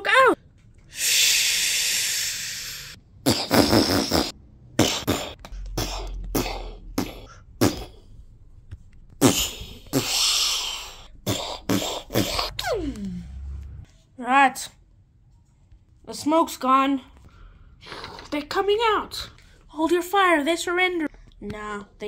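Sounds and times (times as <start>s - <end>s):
mouth-made hissing: 0.9s - 3.0s, 9.2s - 12.3s
mouth-made spitting bursts: 0.9s - 8.0s, 9.2s - 12.8s.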